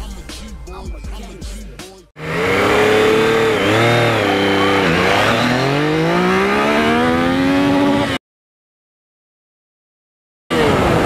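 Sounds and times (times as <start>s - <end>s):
motorcycle engine accelerating: 2.2s - 8.2s.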